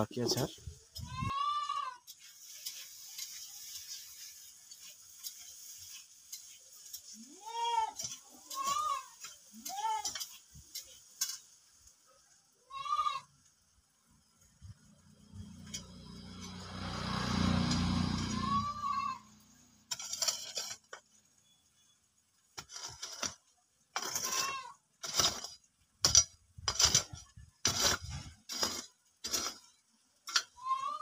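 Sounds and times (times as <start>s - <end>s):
goat bleating: 1.0s - 2.1s, 7.2s - 10.2s, 12.7s - 13.3s, 18.2s - 19.4s, 24.1s - 24.8s, 30.6s - 31.0s.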